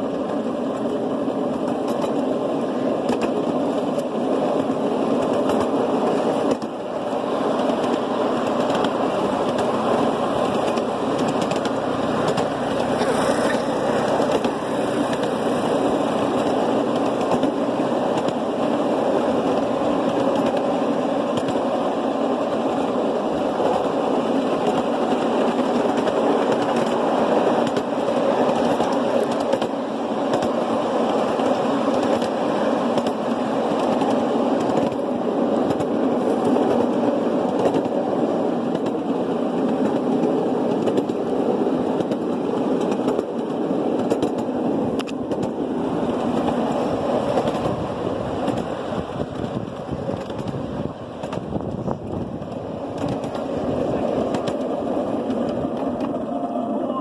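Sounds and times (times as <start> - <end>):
rail car wheels rattling on track: 0.0 - 57.0.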